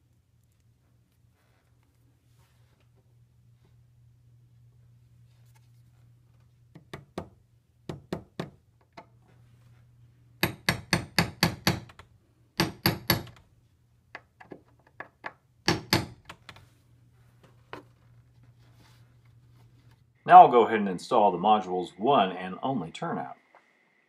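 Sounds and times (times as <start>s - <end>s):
hammer tapping small nails: 10.4s - 13.4s, 14.1s - 16.4s.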